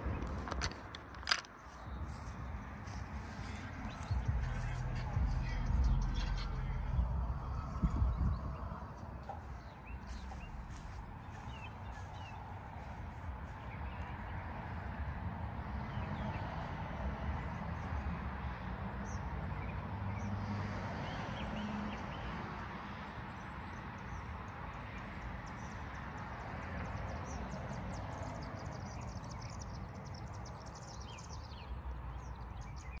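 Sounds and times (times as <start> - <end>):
birds chirping: 0.0 - 15.1, 23.3 - 33.0.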